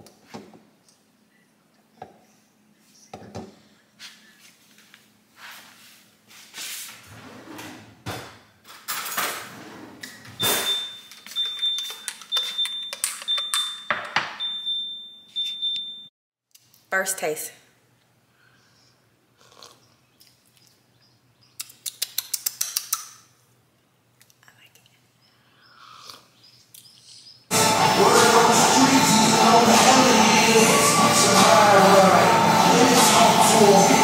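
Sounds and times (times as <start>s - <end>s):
high electronic beep: 10.4s - 16.1s.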